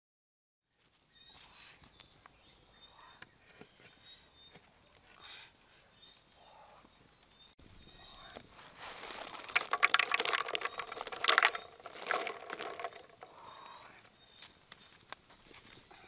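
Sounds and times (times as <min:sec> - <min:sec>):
eggs clicking together: 0:09.2 - 0:13.4.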